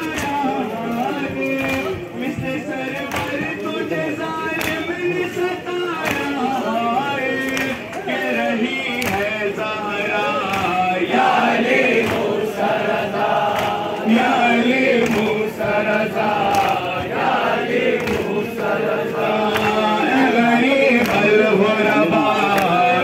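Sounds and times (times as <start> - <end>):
crowd of men chanting: 0.0 - 23.0
chest-beating slaps: 11.8 - 12.5, 13.2 - 15.8, 17.7 - 18.4.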